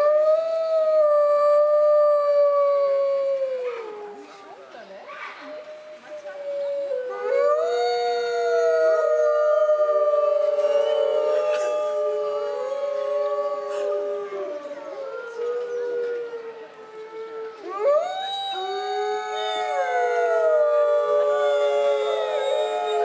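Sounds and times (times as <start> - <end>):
wolves howling in chorus: 5.5 - 23.0.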